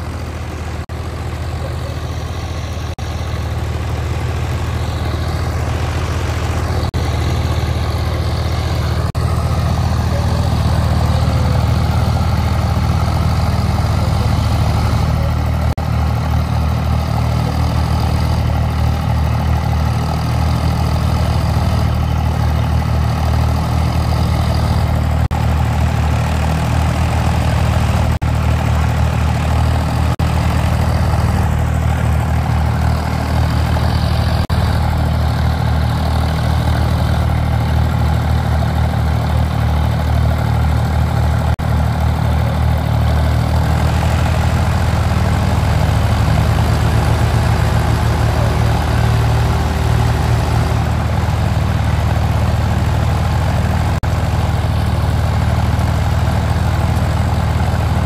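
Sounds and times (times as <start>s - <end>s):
tractor diesel engines under load: 0.0s - 58.0s.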